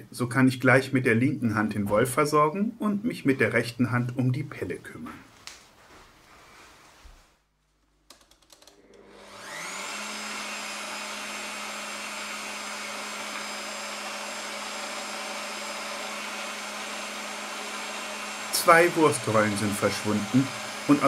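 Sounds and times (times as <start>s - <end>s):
meat grinder motor whine: 8.7s - 21.0s.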